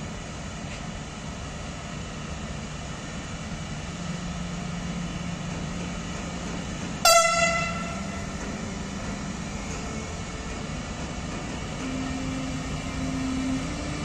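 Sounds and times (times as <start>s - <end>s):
electric locomotive humming: 0.0s - 14.0s
train horn blast: 7.0s - 8.3s.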